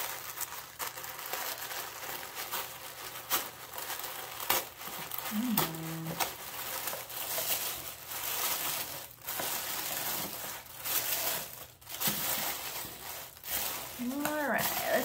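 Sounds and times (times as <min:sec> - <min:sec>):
tissue paper rustling: 0:00.0 - 0:15.0.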